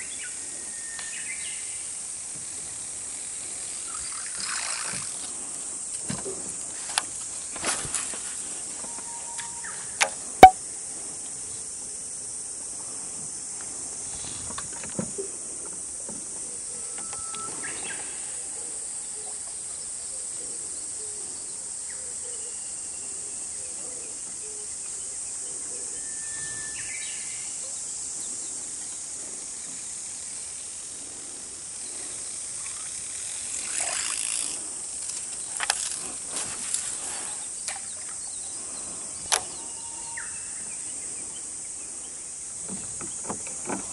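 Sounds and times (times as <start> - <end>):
high insect buzz: 0.0 - 43.9
sharp click: 9.4 - 10.6
small clicks and rustling: 32.6 - 37.8.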